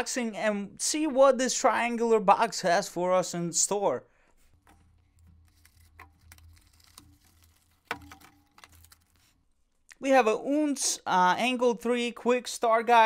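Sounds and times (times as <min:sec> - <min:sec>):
cardboard and paper rustling: 0:04.4 - 0:09.4.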